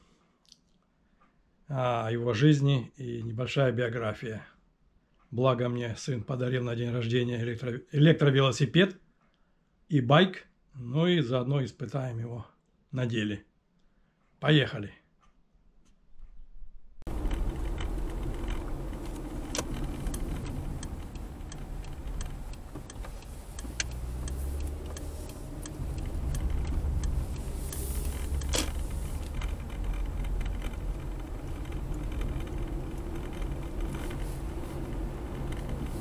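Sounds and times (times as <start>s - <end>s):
car cabin road rumble: 17.1s - 36.0s
small clicks and rattles: 17.1s - 36.0s.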